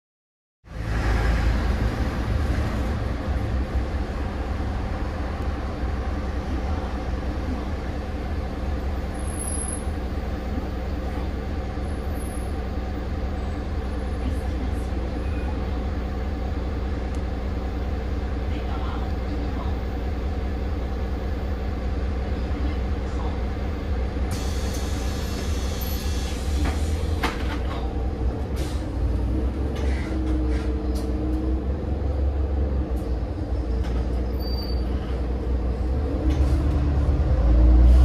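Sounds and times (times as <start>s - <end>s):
diesel bus engine droning: 0.7s - 38.0s.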